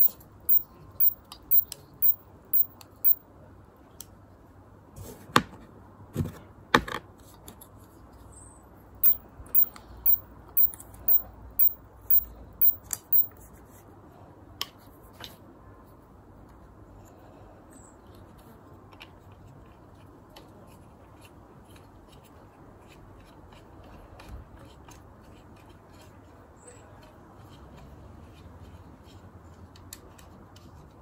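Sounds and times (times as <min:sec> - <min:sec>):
high ticks: 0:00.0 - 0:03.2, 0:09.0 - 0:13.3.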